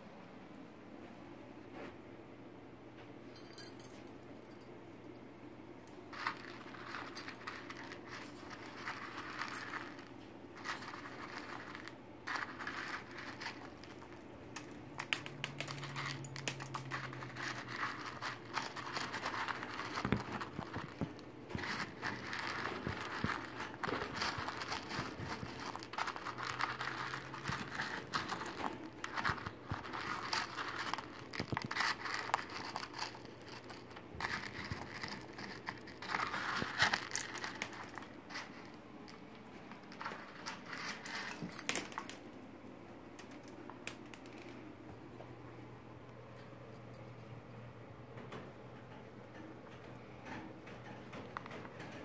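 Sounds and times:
cockatoo crunching food with beak: 5.9s - 42.2s.

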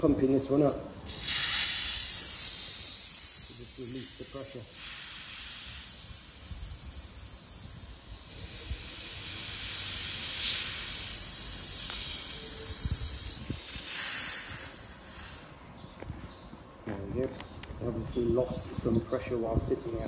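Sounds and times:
compressed air hissing from bottle: 0.8s - 15.6s.

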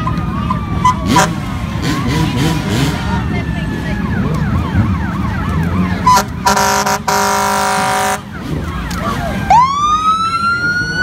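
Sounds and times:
fire engine siren wailing: 0.0s - 11.0s
loud air horn blast: 6.1s - 8.2s.

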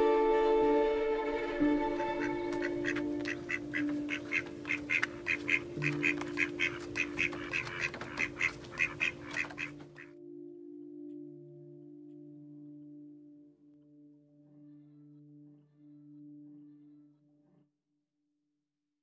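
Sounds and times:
soft background music: 0.0s - 17.6s
duck quacking: 2.0s - 10.2s.

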